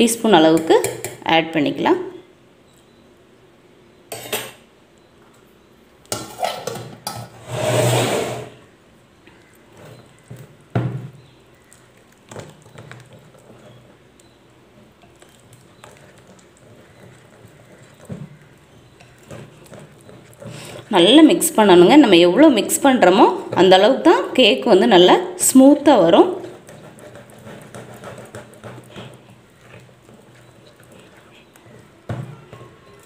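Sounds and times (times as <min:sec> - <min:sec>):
utensils clattering: 0:06.1 - 0:08.5
whisk stirring batter in glass bowl: 0:11.7 - 0:24.8, 0:25.8 - 0:33.0.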